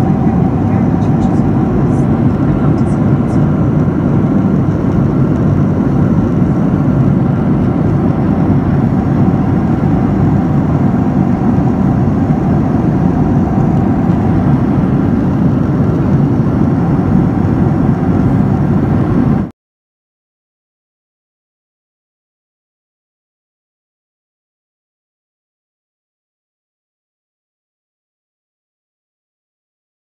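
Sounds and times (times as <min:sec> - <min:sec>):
jet airliner cabin noise: 0:00.0 - 0:19.5.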